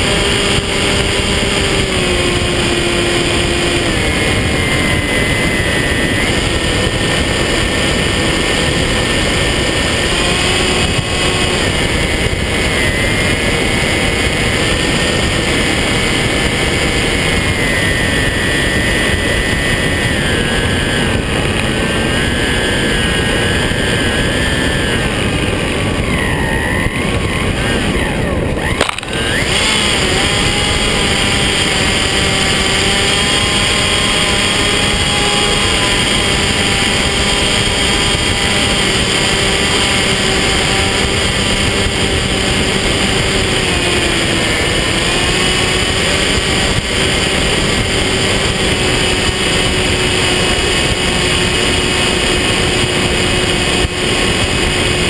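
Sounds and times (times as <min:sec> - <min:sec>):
electric motor propeller whine: 0:00.0 - 0:55.0
wind rush: 0:00.0 - 0:55.0.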